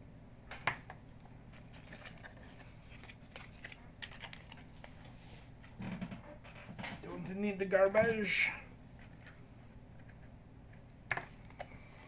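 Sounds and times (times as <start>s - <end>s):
plastic packaging crinkling: 1.6s - 5.1s.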